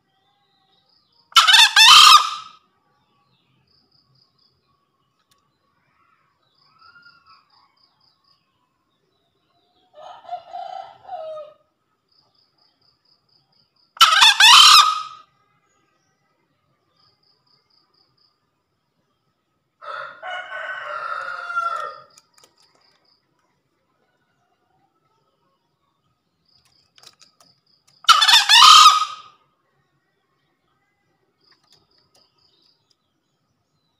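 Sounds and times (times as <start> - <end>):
junglefowl crowing: 1.4 - 2.6, 10.0 - 11.6, 14.0 - 15.2, 19.8 - 22.2, 28.0 - 29.4.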